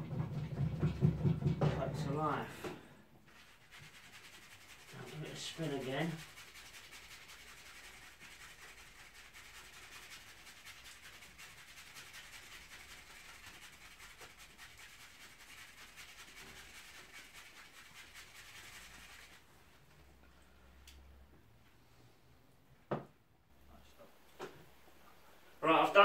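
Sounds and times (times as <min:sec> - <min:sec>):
brush bristles rubbing and ticking: 0:03.3 - 0:19.5.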